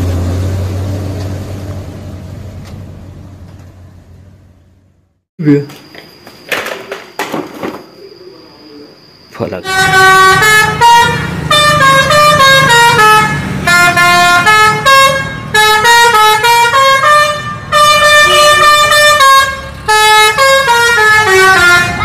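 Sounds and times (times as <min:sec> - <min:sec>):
musical air horn melody: 0:09.6 - 0:22.0.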